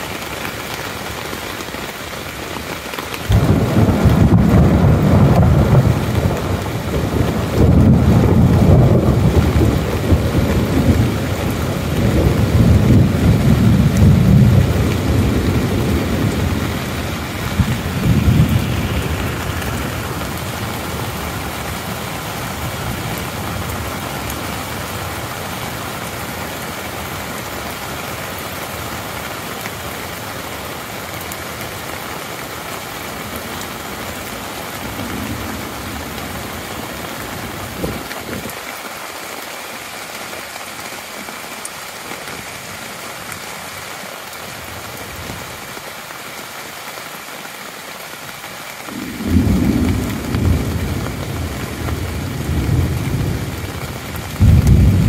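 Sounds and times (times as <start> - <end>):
rain on a tent: 0.0 - 55.0
rolling thunder: 3.3 - 23.0, 48.9 - 55.0.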